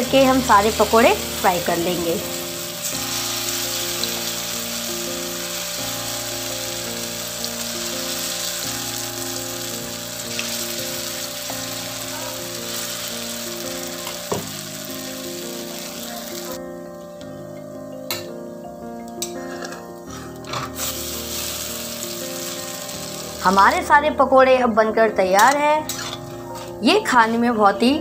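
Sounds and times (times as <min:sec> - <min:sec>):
batter sizzling in hot oil: 0:00.2 - 0:16.6, 0:20.1 - 0:23.7.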